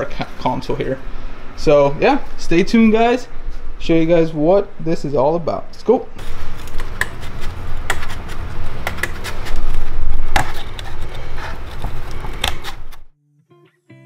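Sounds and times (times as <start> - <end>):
scissors cutting cardboard: 6.2 - 13.1.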